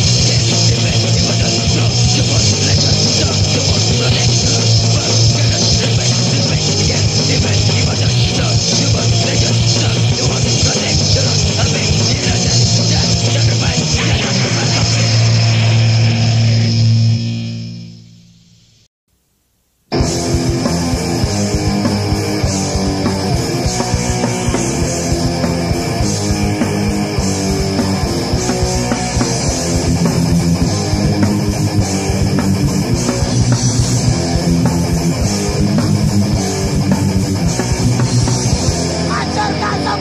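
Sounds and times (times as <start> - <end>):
punk rock music: 0.0 - 18.1, 19.9 - 40.0.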